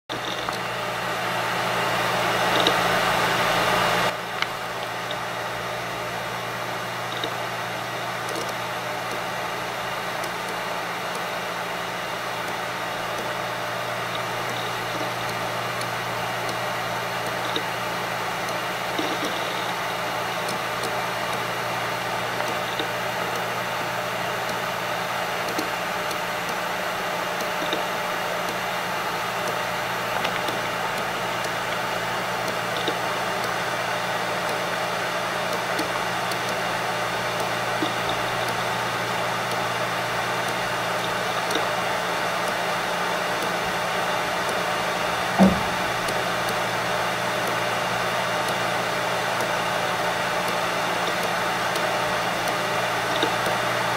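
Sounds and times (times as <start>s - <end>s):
hard disk drive whirring: 0.1s - 53.9s
hard disk head seek ticks: 4.1s - 42.6s, 43.2s - 53.9s
hard disk knock: 45.4s - 46.0s.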